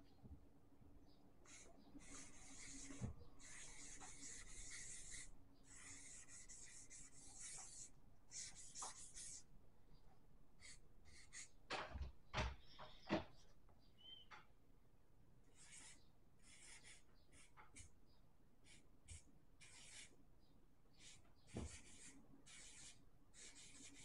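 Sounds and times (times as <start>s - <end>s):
marker rubbing on paper: 1.5s - 9.5s, 10.6s - 11.5s, 15.5s - 17.9s, 18.6s - 20.2s, 21.0s - 24.0s.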